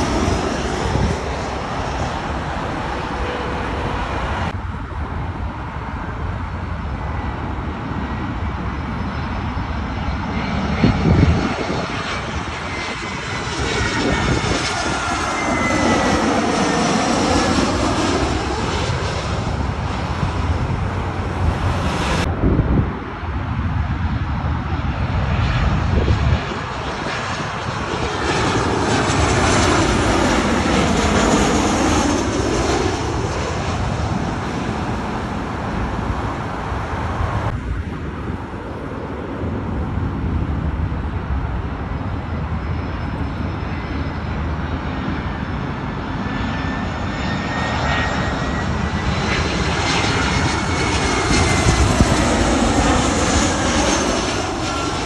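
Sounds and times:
jet airliner passing overhead: 0.0 - 55.0.

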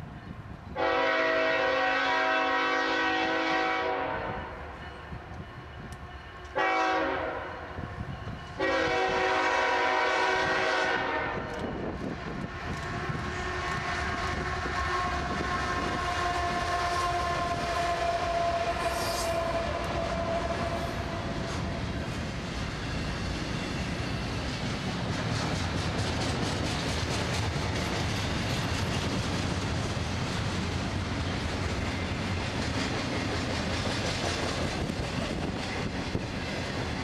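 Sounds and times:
locomotive horn blasts: 0.8 - 4.6, 6.5 - 7.7, 8.6 - 11.7, 12.9 - 21.4
train wheel clatter: 8.0 - 37.0.

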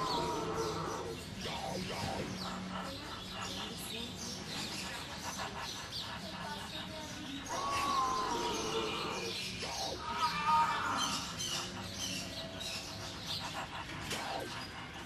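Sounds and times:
high wavering squealing cries: 0.0 - 2.7, 7.5 - 12.6.

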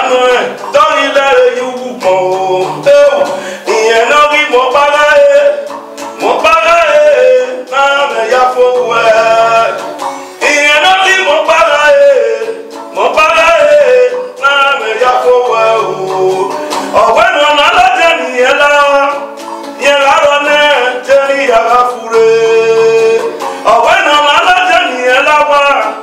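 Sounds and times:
guitar accompaniment: 0.0 - 26.0
man singing: 0.0 - 26.0.

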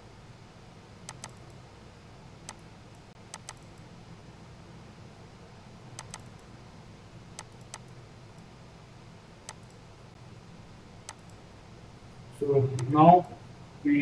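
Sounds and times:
faint low hum: 0.0 - 14.0
computer mouse clicking: 1.0 - 1.6, 2.4 - 3.9, 6.0 - 6.5, 7.4 - 8.5, 9.4 - 9.8, 11.0 - 11.4, 12.7 - 12.9.

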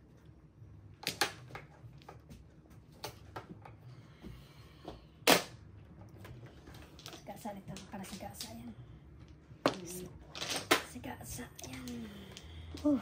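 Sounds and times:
mahjong tiles clacking on table: 9.2 - 13.0.

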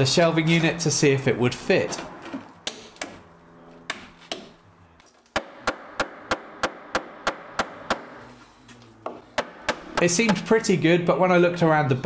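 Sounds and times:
hammer tapping wood: 9.0 - 10.5.

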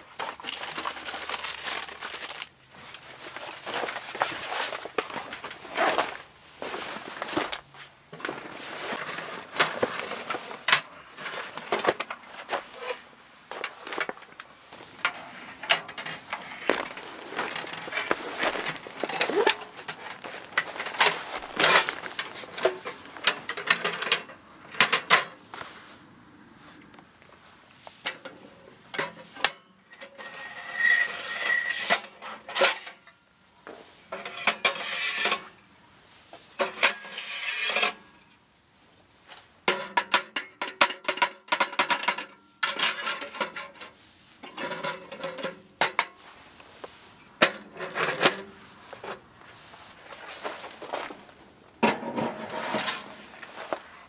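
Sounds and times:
metal clanks clicks and scrapes: 8.2 - 13.0, 15.0 - 25.4, 28.0 - 35.7, 36.6 - 38.4, 39.7 - 46.3, 47.4 - 49.2, 51.8 - 53.8.

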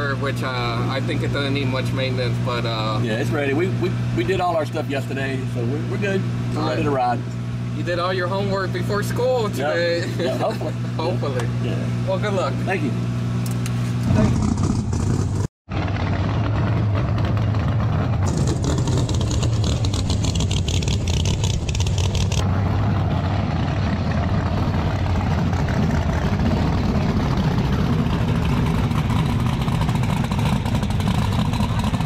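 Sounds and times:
race car engine idling: 16.3 - 22.4, 23.6 - 32.0.

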